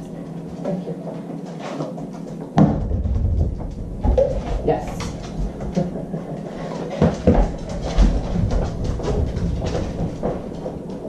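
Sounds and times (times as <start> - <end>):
heavy thumps: 2.5 - 6.2
dog claws clicking on floor: 3.7 - 11.0.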